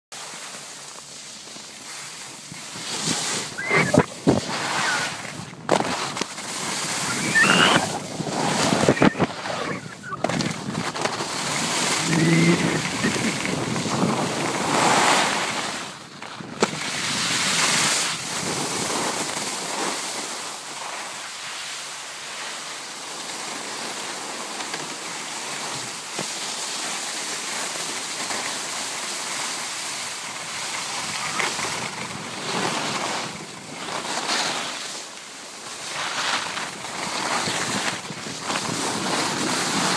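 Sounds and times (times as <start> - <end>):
skis scraping on snow: 0.2 - 39.9
wind on microphone: 2.5 - 5.8, 6.6 - 15.1.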